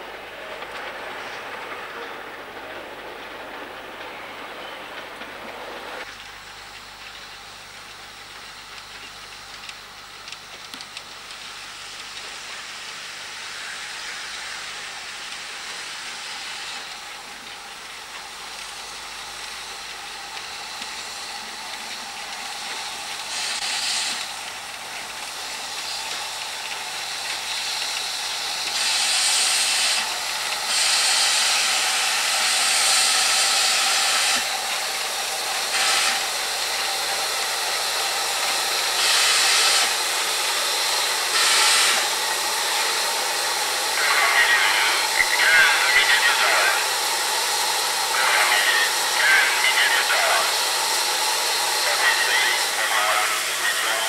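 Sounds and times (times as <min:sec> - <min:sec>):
steam locomotive hissing: 0:11.2 - 0:54.0
loud steam blasts: 0:11.7 - 0:54.0.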